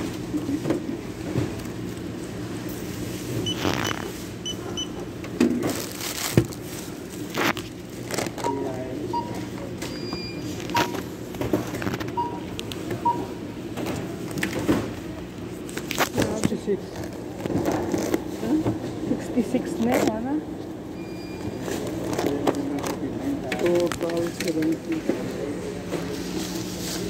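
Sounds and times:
steady store hum: 0.0s - 27.0s
barcode scanner beeps: 3.4s - 5.0s, 8.4s - 11.0s, 12.1s - 13.3s.

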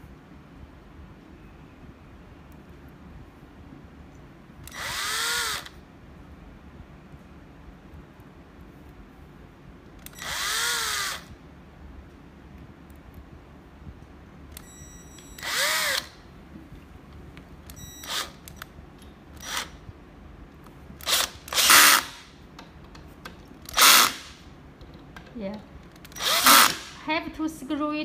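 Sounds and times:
cordless drill driving screws: 4.6s - 5.7s, 10.0s - 11.3s, 15.4s - 16.1s, 18.0s - 18.5s, 21.0s - 22.3s, 23.7s - 24.4s, 26.1s - 27.0s.

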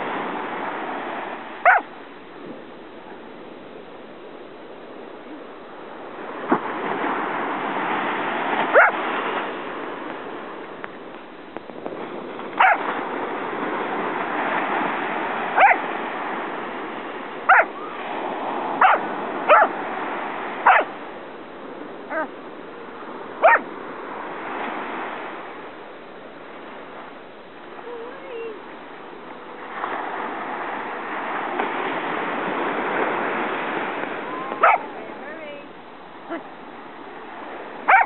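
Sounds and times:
dog barking in short yaps: 1.6s - 1.8s, 8.7s - 9.0s, 12.6s - 12.8s, 15.6s - 15.8s, 17.5s - 17.7s, 18.8s - 19.7s, 20.6s - 20.9s, 23.4s - 23.6s, 34.6s - 34.8s.

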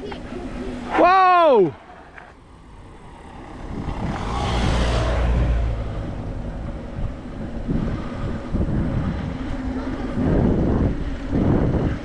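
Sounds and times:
bike tyre and trail noise: 0.0s - 12.0s
wind buffeting microphone: 2.3s - 12.0s.

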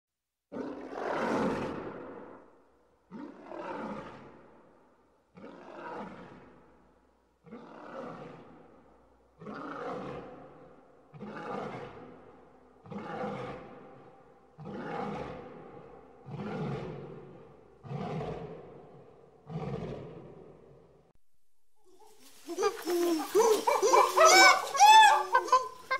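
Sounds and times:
lion roaring: 0.5s - 4.7s, 5.3s - 6.7s, 7.4s - 21.0s.

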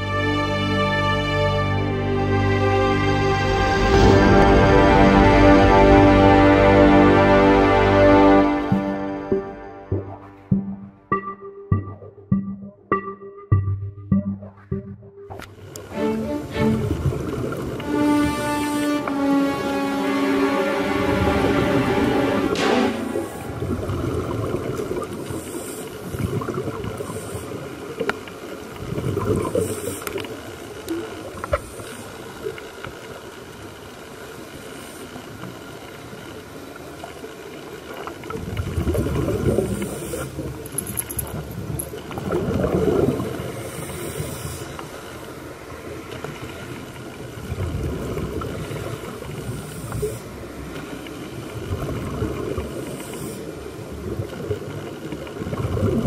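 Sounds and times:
underwater bubbles gurgling: 8.7s - 15.9s, 16.6s - 18.2s, 21.2s - 40.7s, 41.3s - 56.0s.

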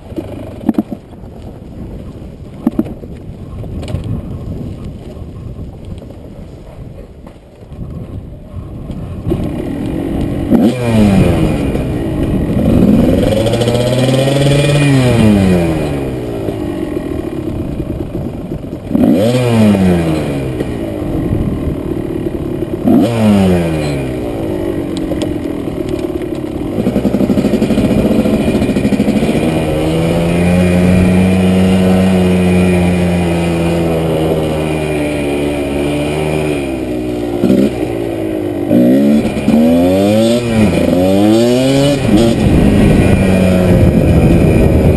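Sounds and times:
dirt bike engine revving: 9.1s - 44.9s.

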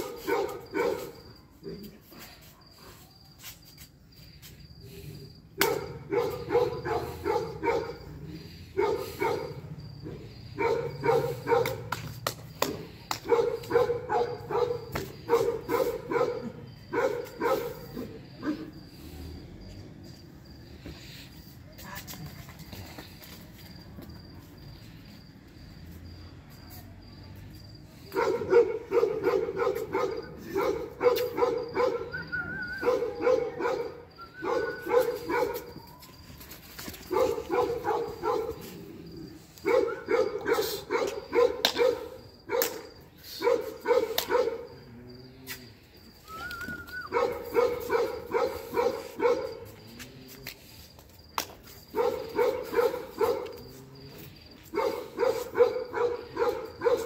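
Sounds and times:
dog barking: 0.0s - 1.2s, 5.6s - 9.7s, 10.6s - 11.9s, 13.2s - 18.7s, 28.1s - 32.1s, 32.8s - 35.8s, 37.1s - 38.7s, 39.6s - 44.7s, 47.1s - 49.7s, 51.9s - 53.6s, 54.7s - 57.0s.

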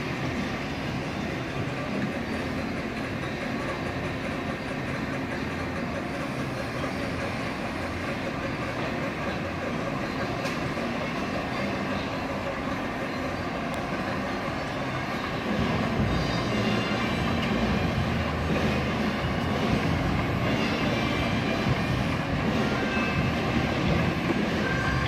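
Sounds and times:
ride train rumbling on track: 0.0s - 25.0s.

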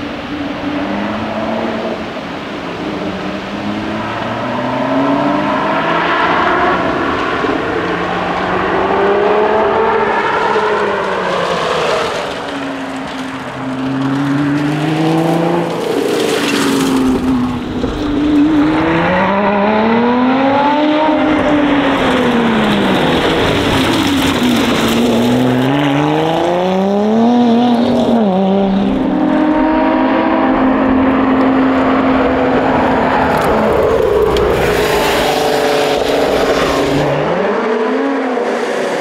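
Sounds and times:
car engine revving: 0.0s - 39.0s.

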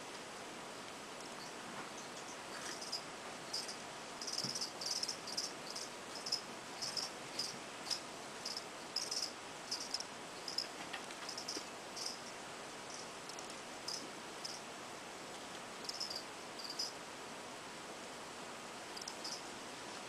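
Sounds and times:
steady hiss: 0.0s - 20.0s
insect chirping: 1.3s - 14.7s, 15.8s - 17.0s, 18.9s - 19.5s.

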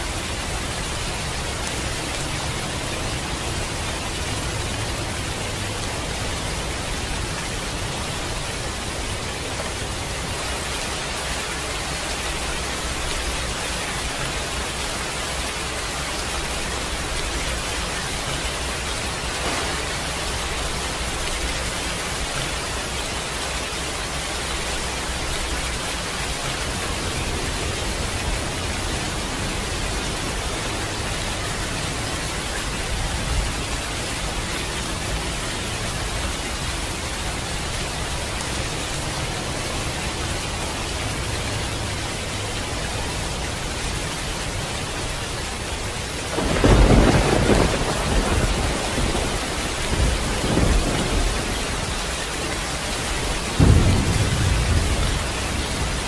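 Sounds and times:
steady rain: 0.0s - 56.0s
thunder rumbling: 16.1s - 23.0s, 46.2s - 56.0s
sharp thunder clap: 19.2s - 21.3s, 46.3s - 51.8s, 53.6s - 56.0s.

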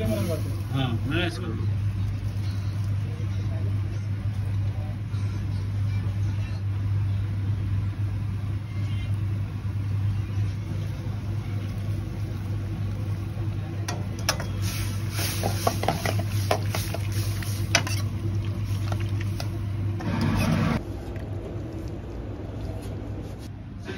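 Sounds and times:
metal ladle scraping a wok: 14.3s - 18.2s.

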